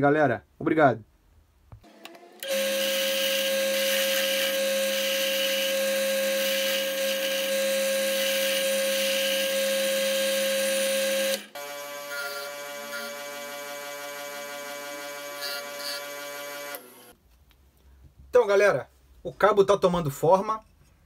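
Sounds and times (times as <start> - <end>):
electric motor hum: 1.9 - 17.1
drill press motor whine: 2.1 - 17.1.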